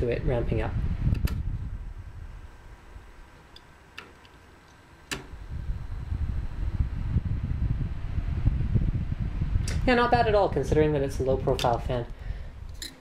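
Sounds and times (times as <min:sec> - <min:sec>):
computer fan airflow: 0:00.0 - 0:13.0
sharp click: 0:05.1 - 0:05.4.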